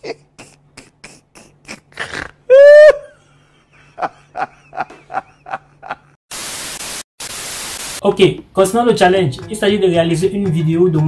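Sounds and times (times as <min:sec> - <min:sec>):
man laughing hard: 0:00.0 - 0:06.2.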